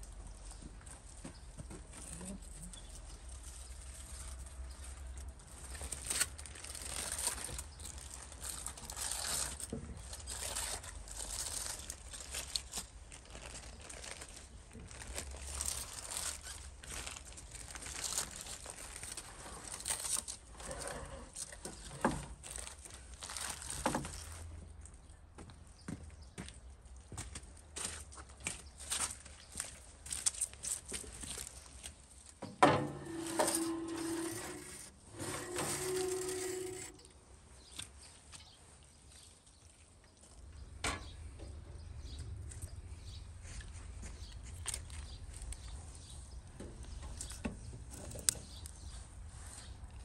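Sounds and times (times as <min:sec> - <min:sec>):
foil and paper crinkling: 0:02.0 - 0:24.7, 0:28.8 - 0:32.4, 0:33.1 - 0:37.2.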